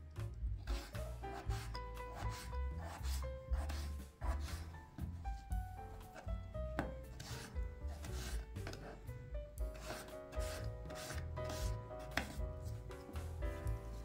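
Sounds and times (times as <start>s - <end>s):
knife chopping on wooden board: 6.0s - 8.9s, 9.7s - 12.4s.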